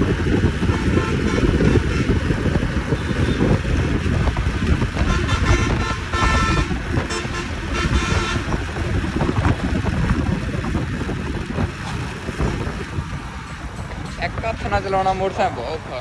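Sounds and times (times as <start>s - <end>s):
wind rumble on microphone: 0.0s - 16.0s
vehicle horn honking: 0.6s - 2.3s, 2.9s - 4.0s, 5.0s - 8.7s.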